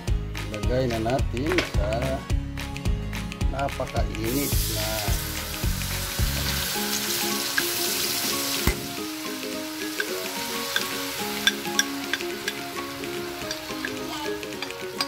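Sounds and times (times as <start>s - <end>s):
hot oil sizzling in a wok: 4.2s - 15.0s
sauce pouring: 4.3s - 15.0s.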